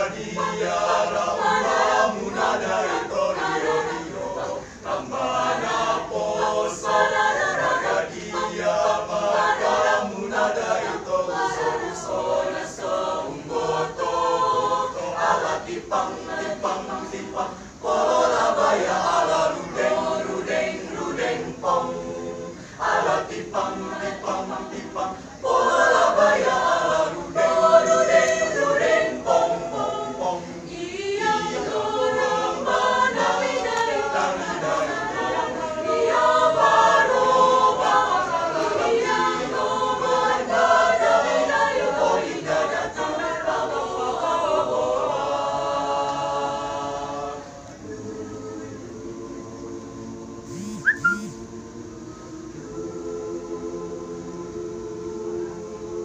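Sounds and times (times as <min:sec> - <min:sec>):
mixed choir singing: 0:00.0 - 0:56.0.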